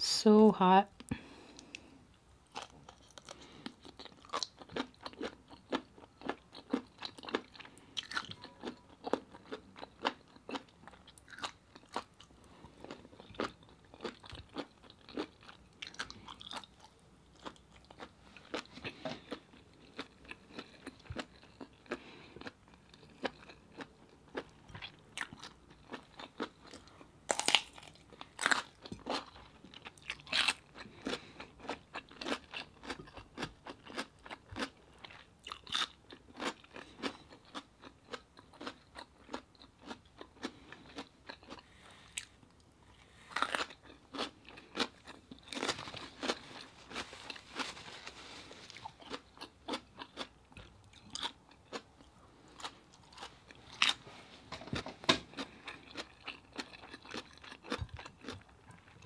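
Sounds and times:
crunchy bites: 0:02.5 - 0:12.2, 0:17.4 - 0:34.7, 0:43.3 - 0:47.7, 0:55.1 - 0:58.6
wet chewing and mouth clicks: 0:02.5 - 0:47.8, 0:54.7 - 0:59.0.

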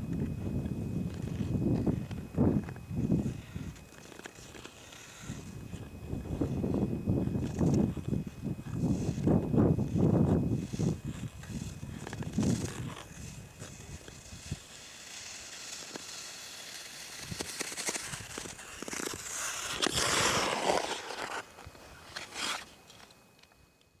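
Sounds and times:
ice skate blades scraping on ice: 0:01.0 - 0:05.9, 0:09.9 - 0:23.1.

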